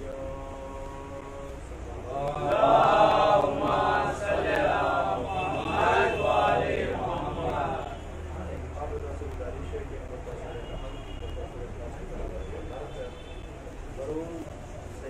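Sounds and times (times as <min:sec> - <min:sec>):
person chanting melodically: 0:00.0 - 0:08.1.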